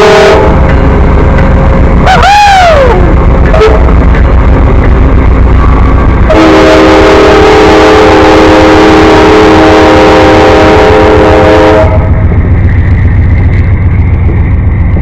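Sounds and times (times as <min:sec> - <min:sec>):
locomotive air horn chord: 0:00.0 - 0:00.6, 0:06.3 - 0:12.2
train rolling past: 0:00.0 - 0:15.0.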